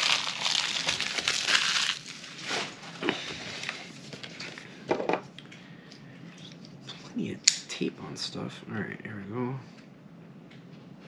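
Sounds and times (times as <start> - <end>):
plastic bag crinkling: 0.0 - 4.6.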